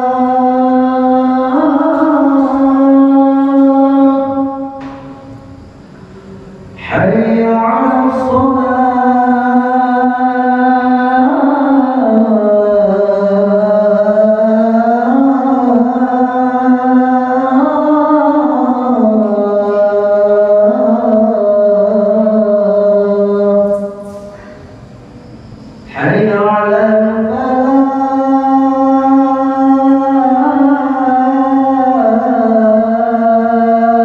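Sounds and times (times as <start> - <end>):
man chanting call to prayer: 0.0 - 5.6, 6.2 - 24.6, 25.8 - 34.0.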